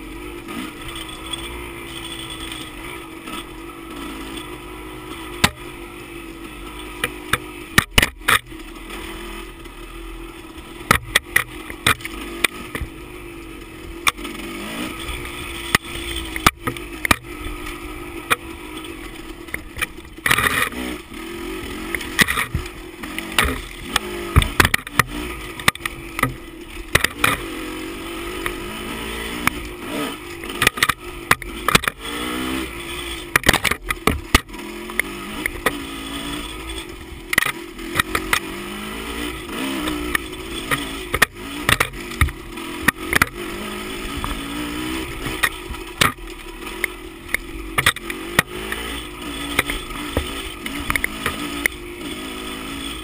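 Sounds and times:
dirt bike engine revving: 0.0s - 53.0s
bike knocking and clattering: 7.0s - 8.6s, 10.8s - 13.0s, 21.9s - 27.5s, 33.2s - 35.9s, 39.9s - 43.4s, 44.2s - 51.8s.

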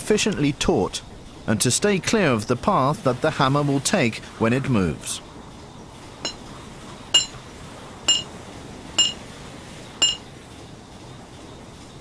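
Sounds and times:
hammer striking metal wrench: 7.2s - 7.4s, 8.1s - 8.3s, 9.0s - 9.2s, 10.0s - 10.2s.

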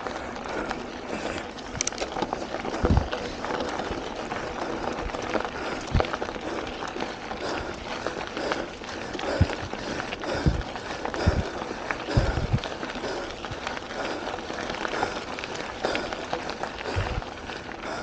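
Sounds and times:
tyres crunching over gravel: 0.0s - 17.9s
bike clicks and rattles: 0.0s - 18.0s
low thumps over bumps: 2.8s - 3.2s, 9.3s - 12.7s.

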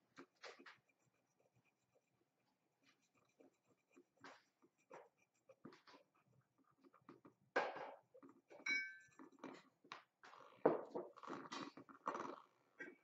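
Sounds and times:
polishing stone rubbing porcelain: 0.0s - 7.4s
ringing clink: 8.7s - 9.1s.

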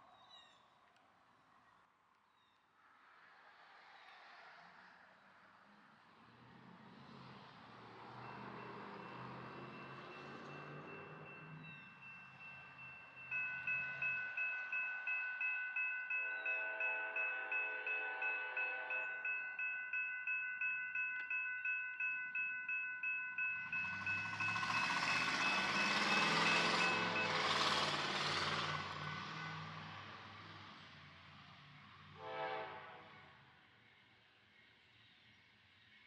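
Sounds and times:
approaching train: 2.8s - 36.0s
railroad crossing bell ringing: 7.8s - 29.0s
low horn tone: 16.3s - 19.5s.

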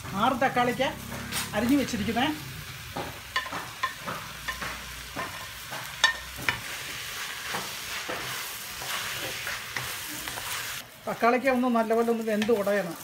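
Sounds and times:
vegetables sizzling in pan: 0.0s - 13.0s
spatula knocking and scraping pan: 2.8s - 10.7s.

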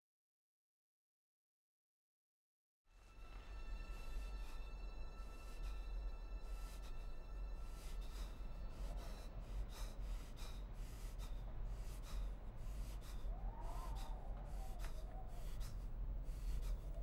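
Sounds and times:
low steady hum: 3.0s - 17.0s
man gasping for breath: 7.7s - 17.0s.

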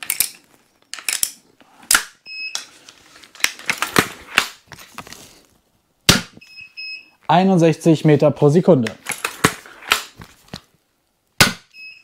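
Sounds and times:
crossbow handling clicks and rattling: 0.0s - 2.0s
crossbow shot: 11.4s - 11.7s
electronic beep: 11.7s - 12.0s.

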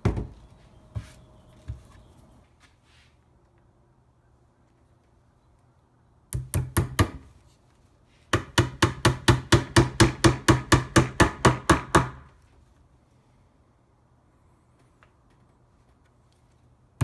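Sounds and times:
hammer tapping metal tacks: 8.3s - 12.3s.

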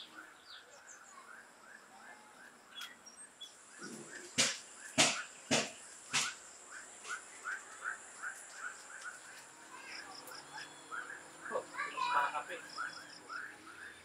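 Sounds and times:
high insect drone: 3.5s - 14.0s.

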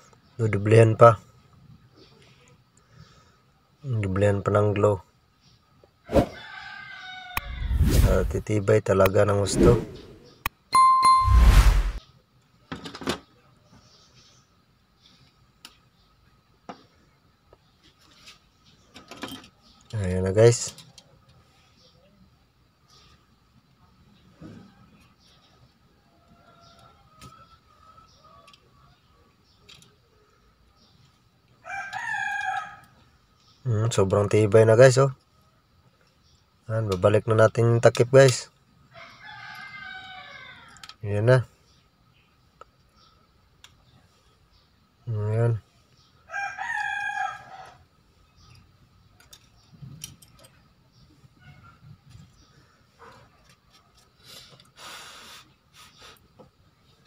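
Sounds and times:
rooster crowing: 6.1s - 7.9s, 31.6s - 33.0s, 38.9s - 40.9s, 46.2s - 47.8s.

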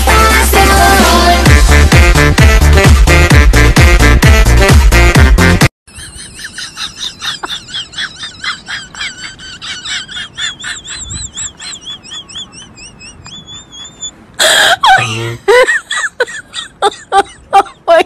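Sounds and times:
small animals squeaking: 10.4s - 14.2s.

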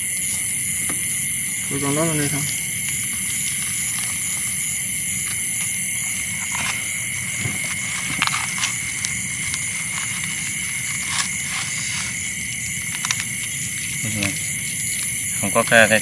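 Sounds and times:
night insects chorus: 0.0s - 16.0s.

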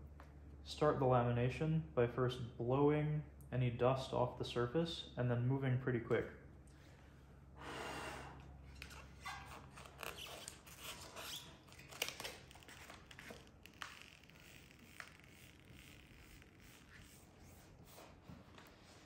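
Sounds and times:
breath blowing: 7.6s - 8.6s
paper and film rustling: 9.3s - 14.0s.

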